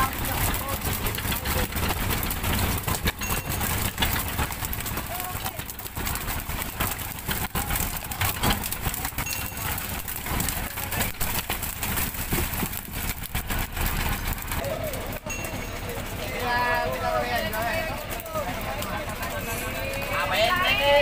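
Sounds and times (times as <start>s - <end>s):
knocks and slaps of fish: 0.0s - 15.2s
boat engine rumble: 0.0s - 21.0s
water splashing: 0.0s - 21.0s.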